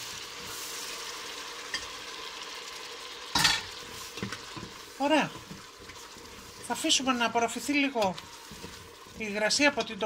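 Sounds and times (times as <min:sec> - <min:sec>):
tomato sizzling in hot oil: 0:00.0 - 0:10.0
wooden spoon stirring: 0:03.7 - 0:10.0.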